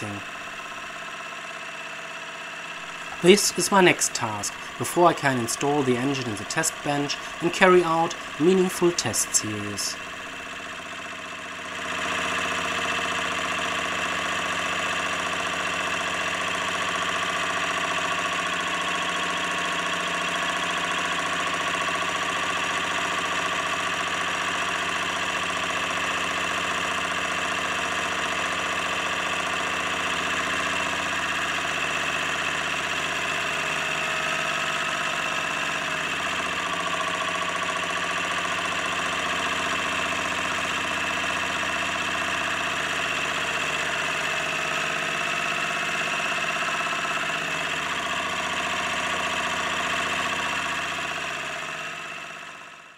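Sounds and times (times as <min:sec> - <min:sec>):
engine running roughly: 0:00.0 - 0:52.9
steady whine: 0:02.7 - 0:11.0.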